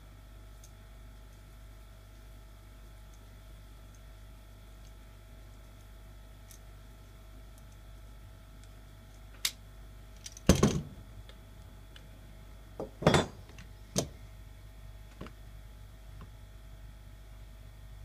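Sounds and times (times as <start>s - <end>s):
metal pipe knocks and clinks: 12.8s - 13.4s.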